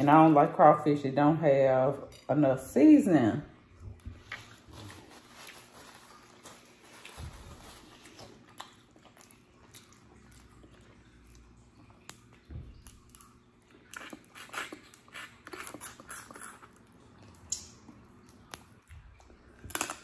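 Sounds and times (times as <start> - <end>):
wet crackling mouth sounds: 8.3 - 20.0.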